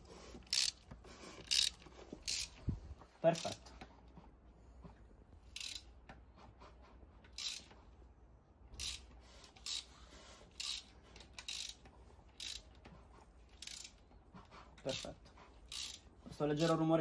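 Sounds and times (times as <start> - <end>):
piston rings rasping in cylinders: 0.0 - 2.7, 5.5 - 6.0, 7.3 - 7.8, 8.8 - 16.8.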